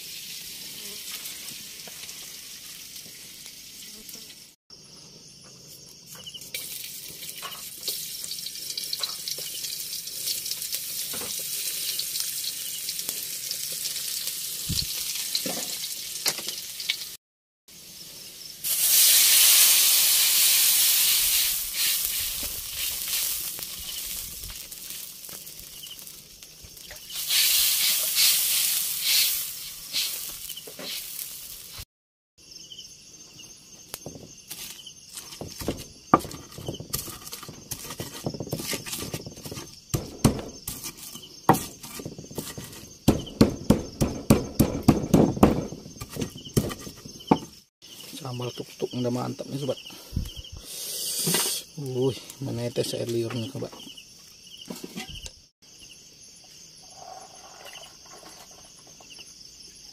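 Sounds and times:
food sizzling in hot oil: 0.0 - 4.6, 6.4 - 31.9, 45.4 - 53.0.

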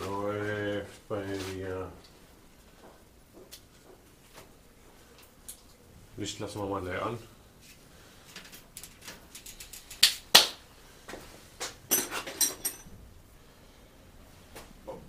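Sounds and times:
metal tools clinking: 11.9 - 13.0.

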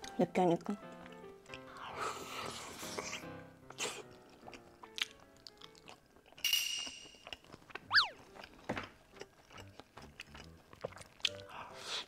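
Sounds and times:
wet chewing and smacking: 0.0 - 6.4, 7.2 - 12.0
light background music: 0.0 - 12.0
loud falling squeak-like tone: 7.9 - 8.2.

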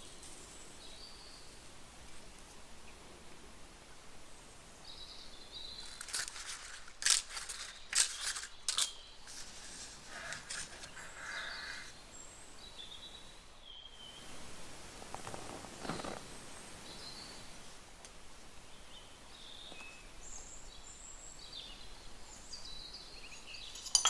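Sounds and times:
paper cases crinkling: 5.8 - 11.4
soft rustles: 5.8 - 11.9.

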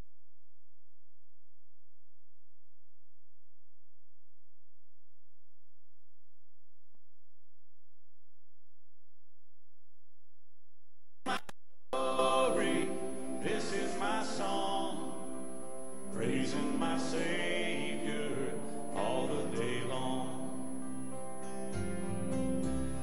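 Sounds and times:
person singing a hymn: 12.0 - 21.9.

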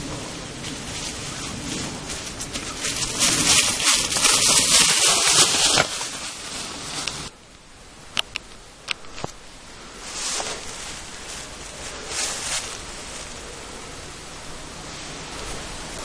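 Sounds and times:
bike tyres rustling through leaves: 0.0 - 7.4, 9.1 - 16.0
sharp clicks: 8.1 - 9.4.

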